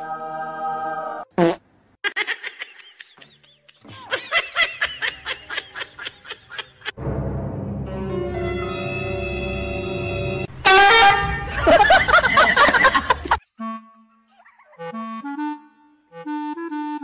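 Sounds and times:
music: 7.0s - 11.6s, 13.6s - 17.0s.

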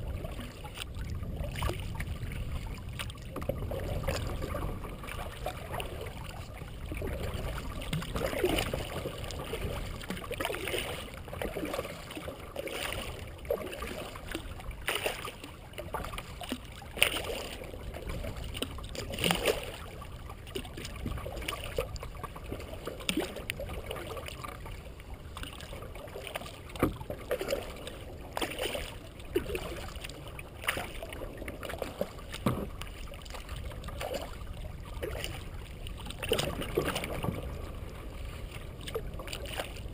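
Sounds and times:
steady low rumble: 0.0s - 12.5s, 29.0s - 39.9s
kayak paddle splashing: 0.0s - 39.9s.

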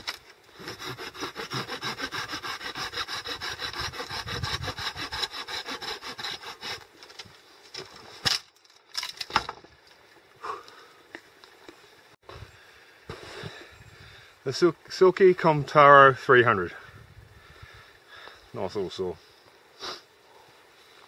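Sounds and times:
pruning saw cutting branch: 0.0s - 7.0s.

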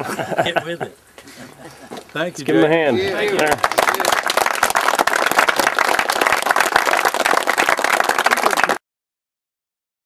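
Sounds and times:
people applauding: 3.0s - 8.8s.

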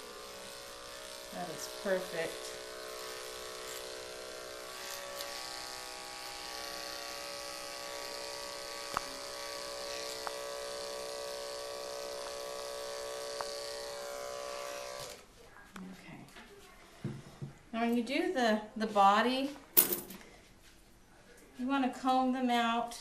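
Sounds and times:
electric clippers buzzing: 0.0s - 15.2s.

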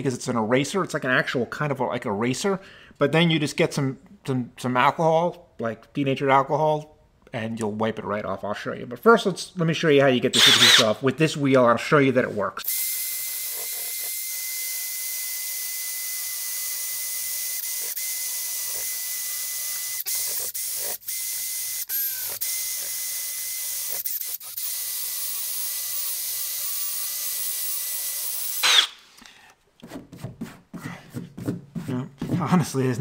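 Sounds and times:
drill whining with hiss: 10.4s - 10.8s, 12.7s - 29.0s.

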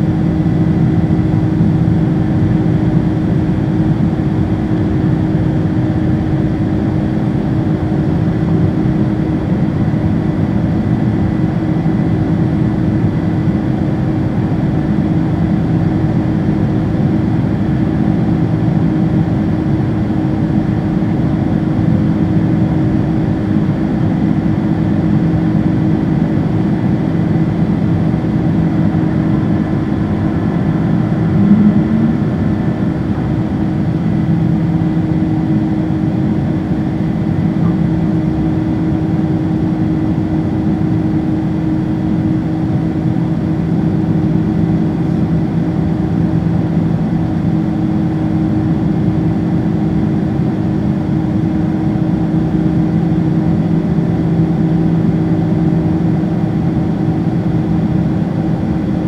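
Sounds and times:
jet engines droning: 25.1s - 46.6s
low hum: 27.7s - 38.9s
rushing airflow: 28.6s - 35.5s.

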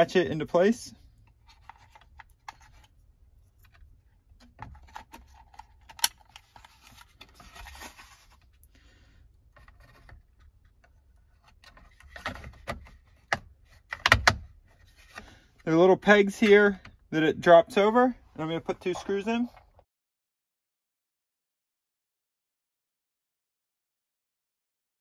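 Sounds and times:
plastic panel clicks and rustling: 3.6s - 7.8s, 9.6s - 14.5s.

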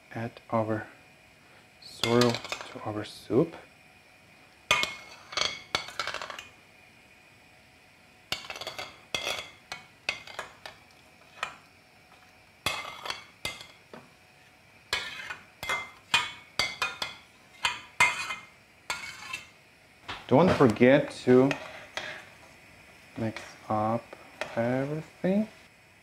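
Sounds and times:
metal spoon scraping cookware: 2.0s - 2.8s, 4.7s - 6.5s, 8.3s - 11.6s, 12.7s - 13.8s, 14.9s - 19.5s, 21.2s - 22.3s.

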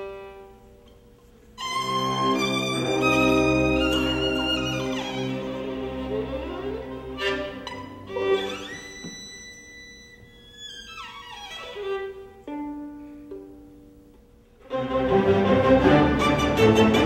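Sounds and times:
solo violin: 0.0s - 0.6s, 1.6s - 13.4s
orchestra: 0.0s - 13.7s, 14.6s - 17.0s.

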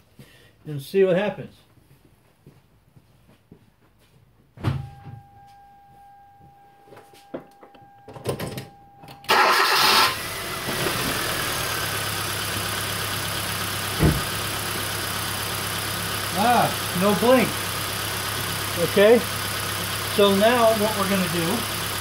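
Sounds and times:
thump: 4.6s - 5.2s, 14.0s - 14.4s
car engine cranking and idling: 7.2s - 22.0s.

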